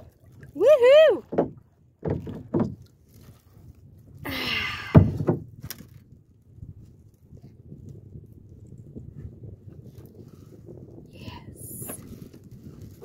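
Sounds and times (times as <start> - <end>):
thumps against kayak hull: 1.2 - 2.9, 4.9 - 5.8.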